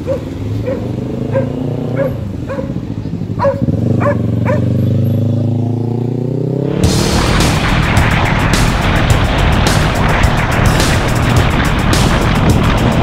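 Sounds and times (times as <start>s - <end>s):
dog barking: 0.0s - 2.8s, 3.4s - 4.8s
vehicle engine running: 0.0s - 13.0s.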